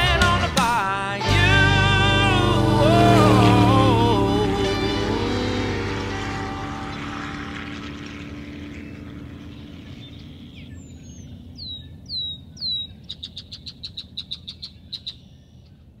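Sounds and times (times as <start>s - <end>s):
music: 0.0s - 5.8s
bird whistling and trilling: 10.1s - 15.6s.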